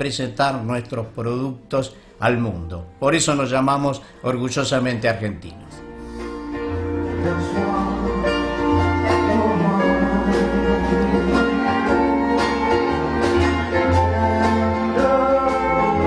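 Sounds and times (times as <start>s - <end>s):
electric bass: 5.8s - 16.0s
plucked strings: 5.9s - 16.0s
drums: 6.4s - 16.0s.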